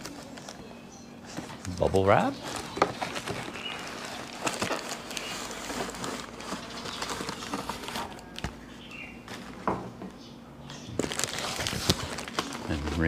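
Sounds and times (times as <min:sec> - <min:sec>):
bubble wrap crinkling: 0:01.4 - 0:08.6, 0:11.0 - 0:13.0.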